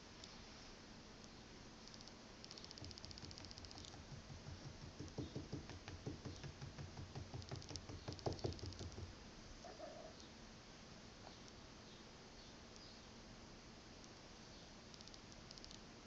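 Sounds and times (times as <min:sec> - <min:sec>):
scratching on carpeted perch: 0:02.0 - 0:09.1.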